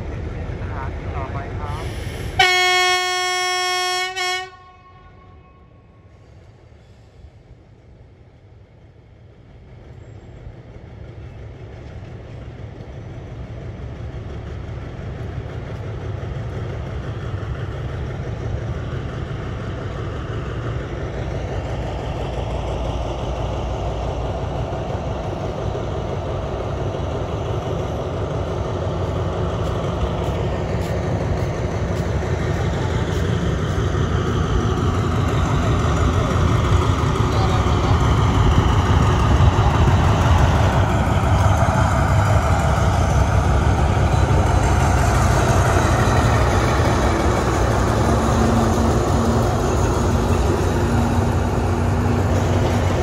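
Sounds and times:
diesel locomotive engine droning: 0:00.0 - 0:53.0.

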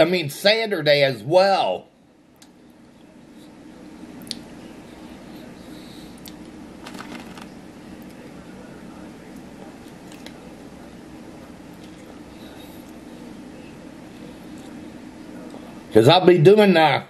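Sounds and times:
steady low hum: 0:00.0 - 0:17.0
close eating sounds: 0:02.4 - 0:15.9
crinkling clicks: 0:06.8 - 0:08.2.

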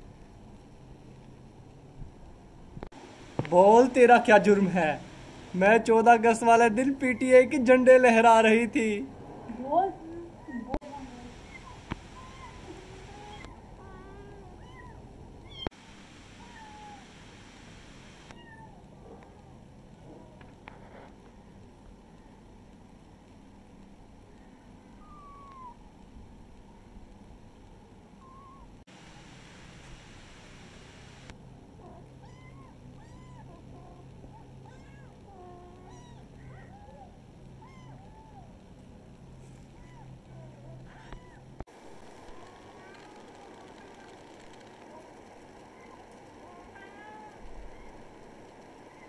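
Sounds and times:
kitten mewing: 0:31.8 - 0:38.5, 0:39.7 - 0:41.5.

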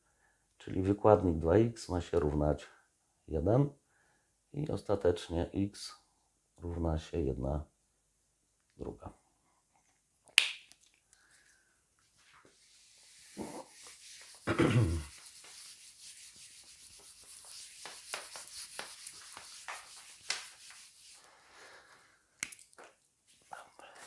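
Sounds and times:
eraser wiping whiteboard: 0:12.5 - 0:21.3.

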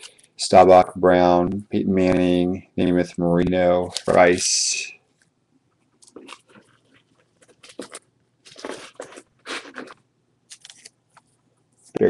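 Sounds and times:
trading cards rustling and clicking: 0:03.9 - 0:04.5, 0:06.0 - 0:11.4.

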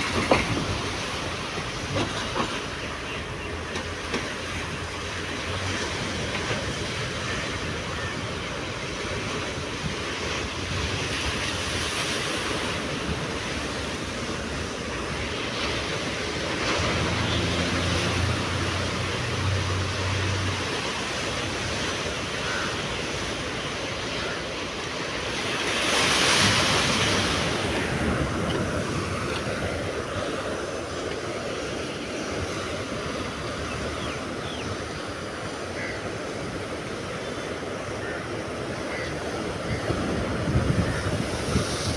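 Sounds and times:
sea surf breaking on rocks: 0:00.0 - 0:41.9
wind on microphone: 0:39.7 - 0:41.9.

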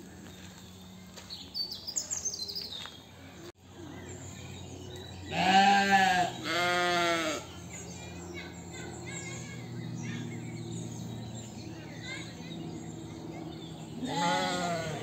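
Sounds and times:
birds chirping: 0:00.0 - 0:15.0
sheep bleating: 0:05.3 - 0:07.5, 0:14.0 - 0:15.0.

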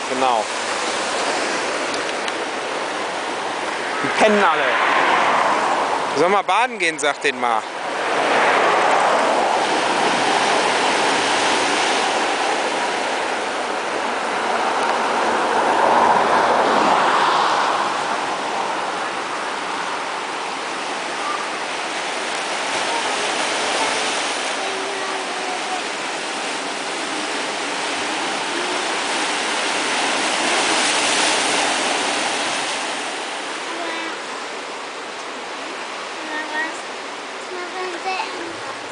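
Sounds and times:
surf washing over rocks: 0:00.0 - 0:38.9.

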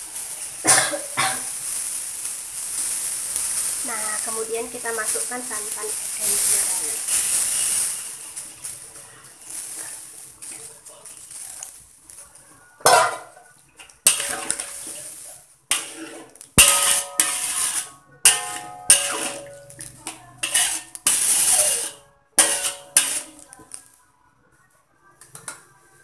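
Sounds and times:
metal spoon scraping a wok: 0:12.9 - 0:23.8.

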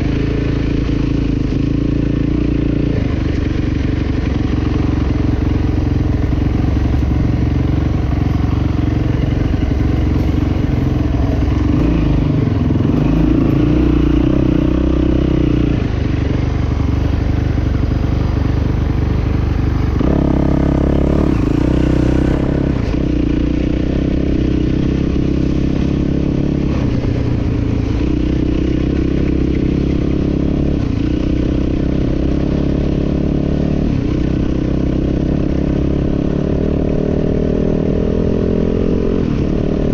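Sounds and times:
dirt bike engine revving: 0:04.5 - 0:15.8, 0:19.9 - 0:27.0.

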